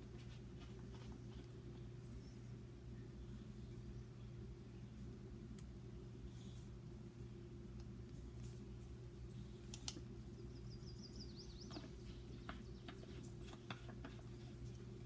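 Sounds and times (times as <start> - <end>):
faint room hum: 0.0 - 15.0
tiny ticks: 9.7 - 10.0.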